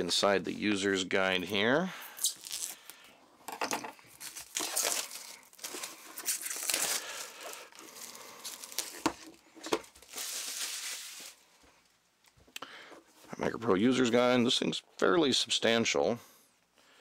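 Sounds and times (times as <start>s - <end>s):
plastic shrink wrap tearing: 2.2s - 3.0s, 4.2s - 11.4s.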